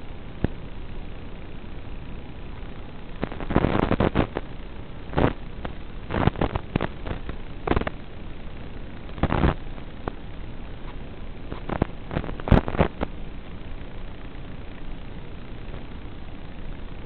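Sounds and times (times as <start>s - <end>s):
steady hiss: 0.0s - 17.0s
sharp crackling pops: 3.2s - 8.0s, 9.0s - 10.2s, 10.8s - 13.2s.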